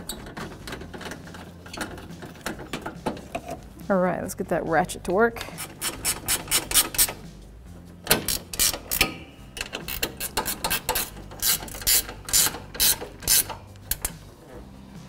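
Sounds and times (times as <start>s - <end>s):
hand ratchet clicking: 5.4s - 7.3s, 8.1s - 14.2s.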